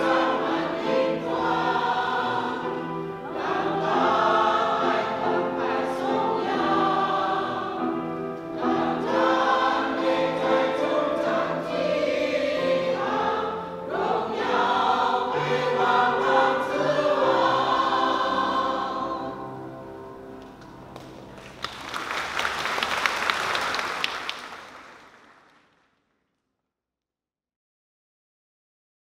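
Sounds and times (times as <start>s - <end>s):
choir singing a hymn: 0.0s - 20.4s.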